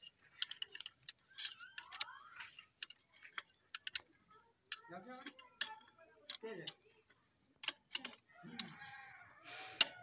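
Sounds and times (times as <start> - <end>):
wrench metal clicks: 0.0 - 2.1, 2.8 - 4.1
high-pitched hiss: 0.0 - 10.0.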